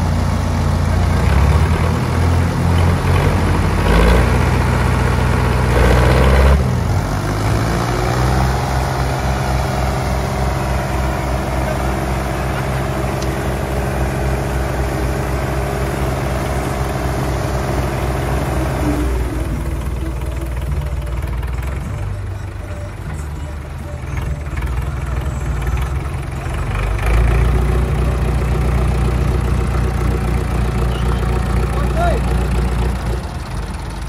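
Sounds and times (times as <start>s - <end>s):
diesel tractor engines under load: 0.0s - 34.0s.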